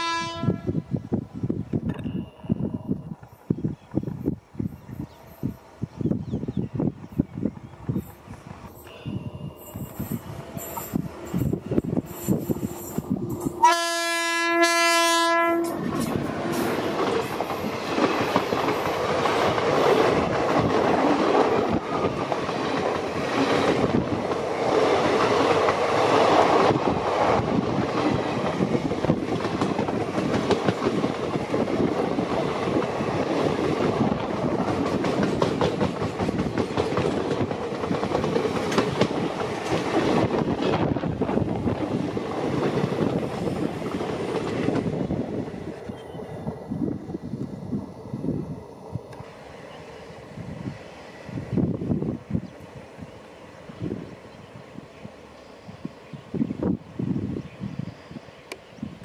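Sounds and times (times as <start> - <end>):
locomotive horn blast: 0.0 - 0.8, 13.6 - 15.9
train coaches rolling past: 0.0 - 59.0.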